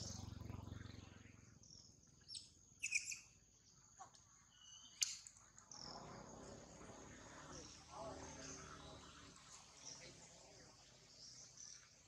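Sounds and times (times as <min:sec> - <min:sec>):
short bird chirps: 0:02.2 - 0:03.4, 0:04.5 - 0:05.8.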